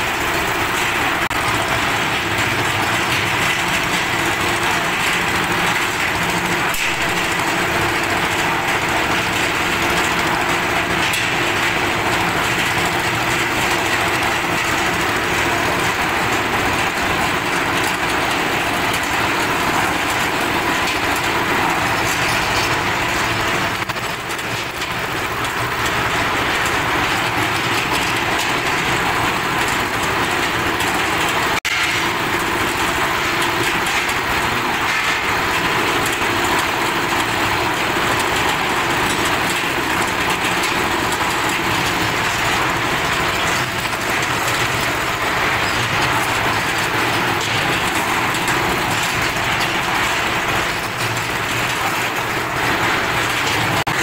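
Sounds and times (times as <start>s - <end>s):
concrete mixer running: 0.0s - 54.0s.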